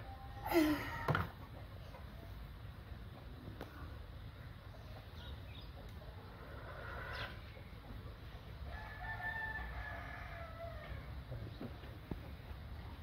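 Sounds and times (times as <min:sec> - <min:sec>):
rooster crowing: 0:08.7 - 0:11.1.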